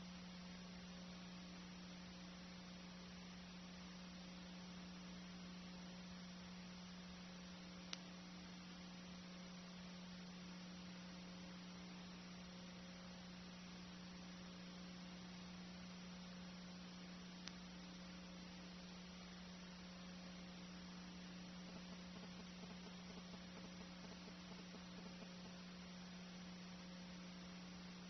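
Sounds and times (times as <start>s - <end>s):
low electrical hum with hiss: 0.0s - 28.0s
faint clicks: 7.8s - 8.1s, 17.4s - 17.7s, 21.7s - 25.6s.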